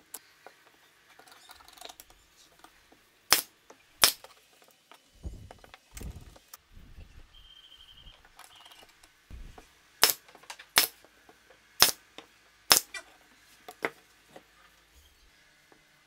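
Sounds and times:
nail gun firing: 3.3 - 4.2, 10.0 - 10.2, 10.8 - 11.0, 11.8 - 12.0.

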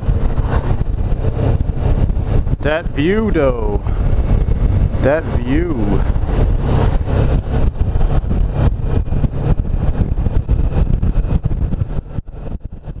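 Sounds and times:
motorcycle riding: 0.0 - 13.0
wind buffeting microphone: 0.0 - 13.0.

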